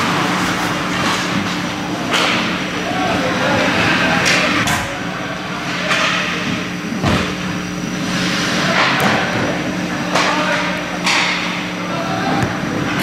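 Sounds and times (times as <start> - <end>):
steady low hum: 0.0 - 13.0
hockey sticks and puck clacking: 0.9 - 2.6, 5.6 - 6.3, 10.0 - 11.7.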